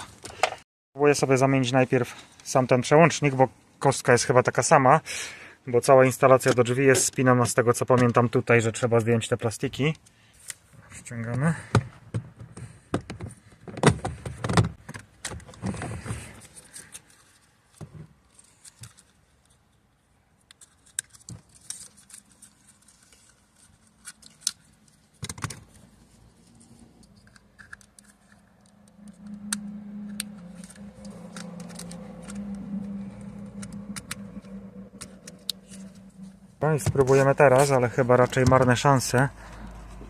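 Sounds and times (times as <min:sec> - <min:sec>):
low steady hum: 0:25.9 - 0:40.0.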